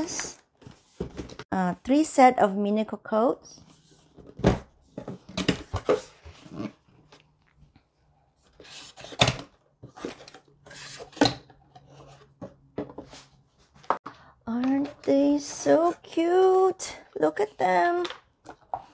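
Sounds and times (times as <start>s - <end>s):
cardboard rustling and scraping: 0.5s - 1.5s, 8.4s - 14.0s.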